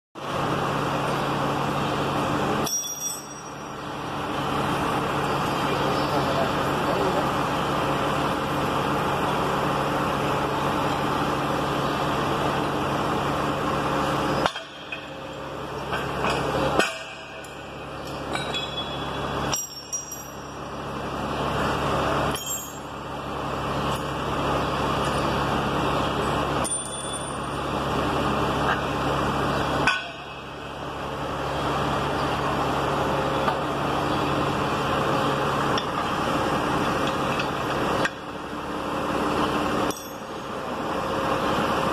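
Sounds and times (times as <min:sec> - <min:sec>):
engine hum: 0:00.2 - 0:41.9
metal hardware clinking: 0:02.6 - 0:03.6, 0:18.3 - 0:20.4.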